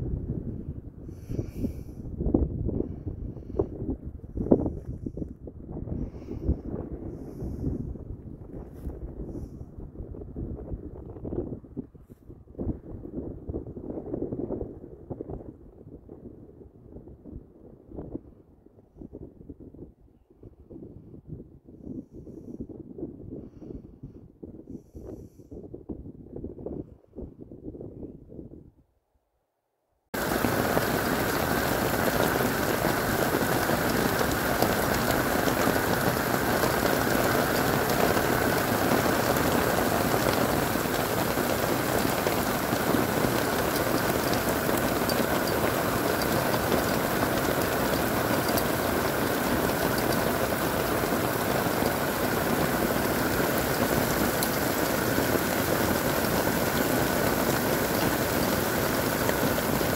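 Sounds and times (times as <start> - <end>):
steady rain drops ticking: 30.2 - 59.9.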